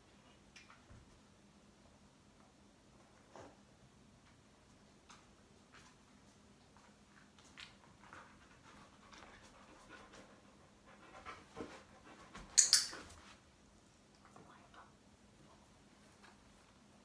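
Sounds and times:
dog panting: 7.9s - 12.6s.

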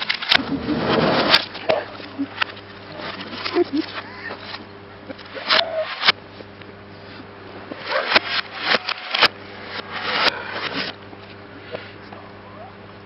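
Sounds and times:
metal panels crunching and scraping: 0.0s - 4.6s
sharp cracks: 0.0s - 6.7s, 7.7s - 11.4s.

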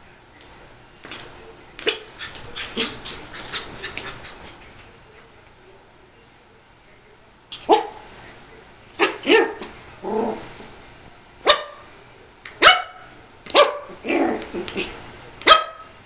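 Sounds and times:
puppy barking: 7.6s - 8.0s, 9.0s - 9.7s, 11.4s - 11.9s, 12.6s - 14.4s, 15.4s - 15.9s.

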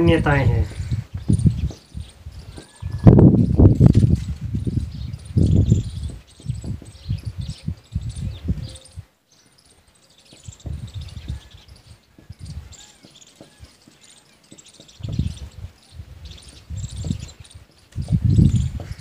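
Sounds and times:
birds chirping: 0.0s - 19.0s
low thuds and rumbles: 0.8s - 8.6s, 10.4s - 11.4s, 14.7s - 17.4s, 18.0s - 19.0s
insects chirping: 1.2s - 18.8s.

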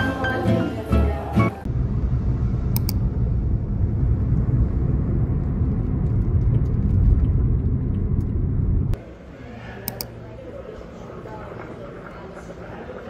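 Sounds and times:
road rumble inside car: 1.6s - 9.0s.

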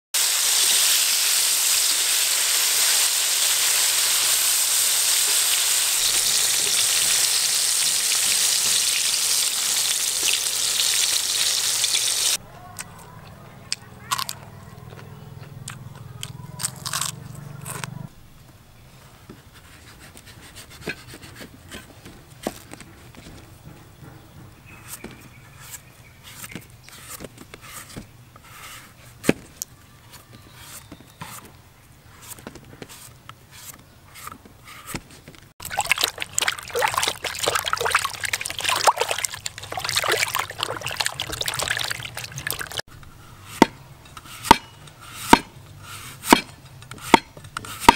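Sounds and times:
hands splashing in water basin: 35.6s - 42.8s.

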